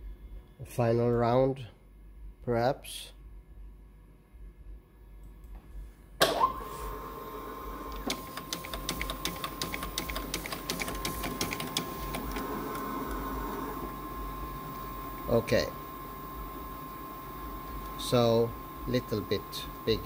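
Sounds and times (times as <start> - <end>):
scanner motor whine: 6.5 - 8.1, 11.9 - 20.0
rapid paper feed clicks: 8.0 - 12.8.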